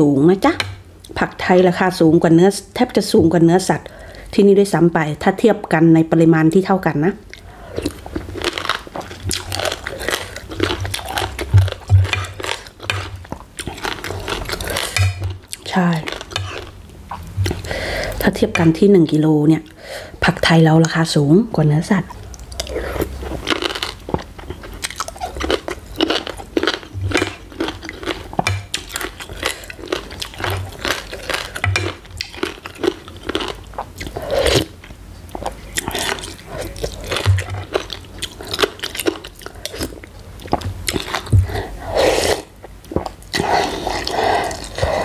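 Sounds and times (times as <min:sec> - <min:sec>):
crisp crunching and chewing: 0:07.8 - 0:17.7, 0:22.3 - 0:41.5.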